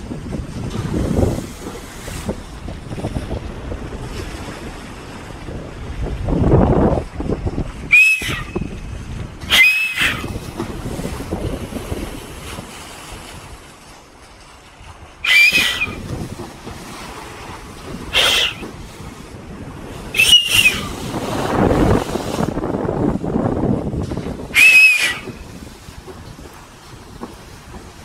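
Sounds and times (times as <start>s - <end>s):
rushing water of bow wave: 0.0s - 28.0s
wind buffeting microphone: 0.0s - 28.0s
short sharp squeaking sound: 8.0s - 8.5s, 9.5s - 10.3s, 15.3s - 16.0s, 18.2s - 18.6s.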